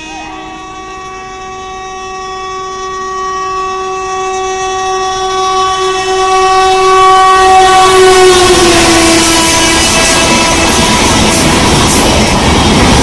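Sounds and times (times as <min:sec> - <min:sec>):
locomotive horn blast: 0:00.0 - 0:12.0
train coaches rushing past: 0:07.4 - 0:13.0.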